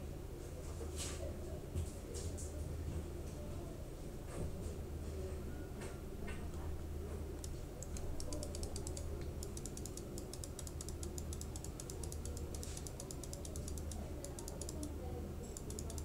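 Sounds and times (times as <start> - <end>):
steady low hum: 3.1 - 16.0
computer keyboard clicking: 7.4 - 14.9, 15.5 - 16.0.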